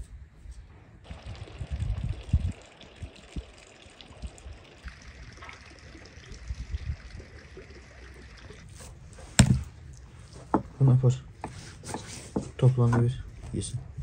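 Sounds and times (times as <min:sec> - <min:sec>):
water trickling: 0:01.1 - 0:10.8.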